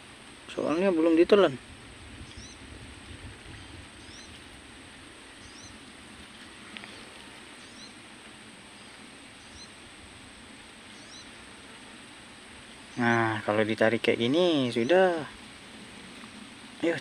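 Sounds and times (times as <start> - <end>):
faint hiss: 0.0 - 17.0
small animal chirping: 2.2 - 2.6, 4.0 - 4.4, 5.4 - 5.8, 7.6 - 8.0, 9.4 - 9.8, 10.9 - 11.4.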